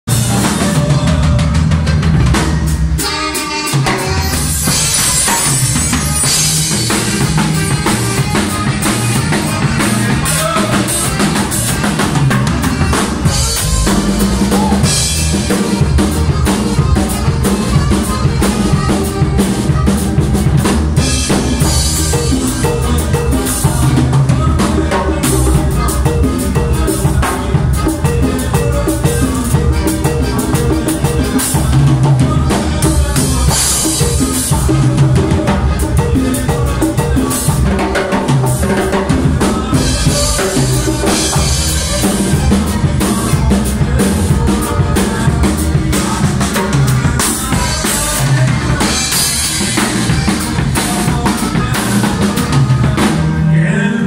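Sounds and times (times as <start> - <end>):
live band playing: 0.0 - 54.0
drum kit kick and snare: 0.1 - 53.4
congas: 0.1 - 54.0.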